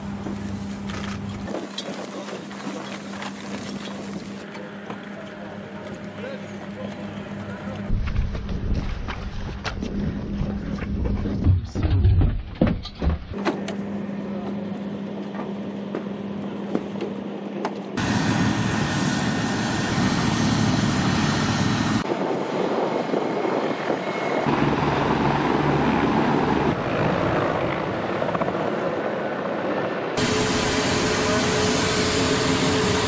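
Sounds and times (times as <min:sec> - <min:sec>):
helicopter engine and rotors: 0:04.3 - 0:08.6, 0:13.4 - 0:33.0.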